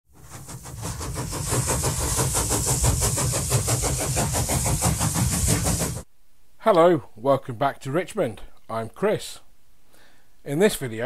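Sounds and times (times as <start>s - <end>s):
steam hissing: 0.1s - 6.1s
steam locomotive chuffing: 0.1s - 6.1s.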